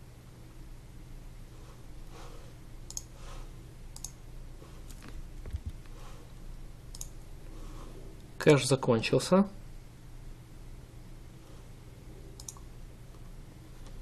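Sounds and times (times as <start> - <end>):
low steady hum: 0.0 - 14.0
computer mouse clicks: 2.8 - 3.1, 4.0 - 4.2, 6.9 - 7.2, 12.3 - 14.0.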